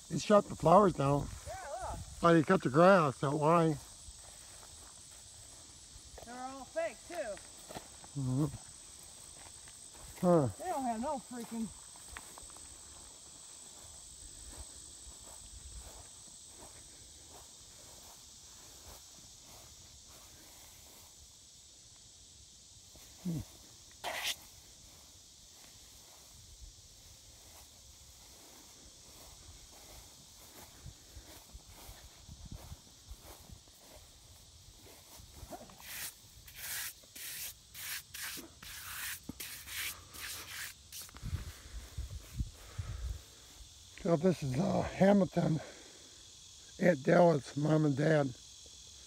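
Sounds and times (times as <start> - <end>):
steady high hiss: 0.0 - 49.0
footsteps on grass: 3.3 - 21.2, 27.1 - 43.8
sharp breathy hiss: 22.9 - 26.4, 34.9 - 43.8, 45.5 - 46.7
brush scratching on stone: 24.0 - 24.4, 35.7 - 41.2.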